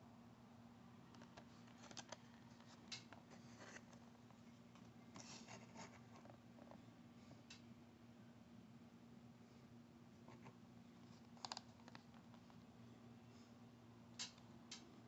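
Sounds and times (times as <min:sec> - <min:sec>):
faint steady hum: 0:00.0 - 0:15.0
plastic blister pack crinkling: 0:01.2 - 0:04.0.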